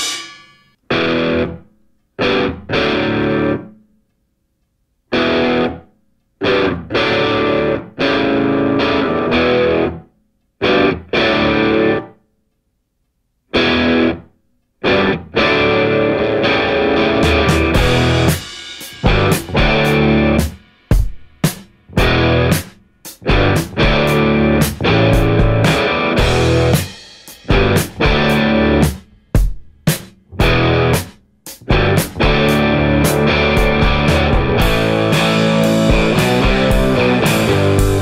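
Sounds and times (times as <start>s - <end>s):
distorted electric guitar chords: 0.9s - 3.7s, 5.1s - 5.8s, 6.4s - 10.0s, 10.6s - 12.1s, 13.5s - 14.2s, 14.8s - 20.6s, 21.9s - 29.1s, 30.3s - 38.0s.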